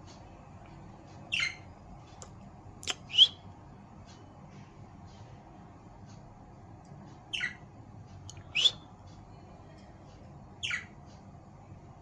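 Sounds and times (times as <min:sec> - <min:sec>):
budgerigars chirping and squawking: 0:01.3 - 0:01.7, 0:02.9 - 0:03.4, 0:07.2 - 0:07.7, 0:08.4 - 0:08.9, 0:10.6 - 0:11.0.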